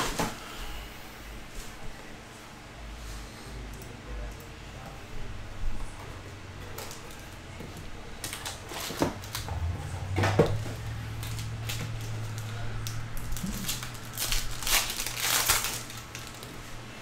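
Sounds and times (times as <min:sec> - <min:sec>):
faint low hum: 0:00.0 - 0:17.0
foil card pack crinkling: 0:11.0 - 0:16.8.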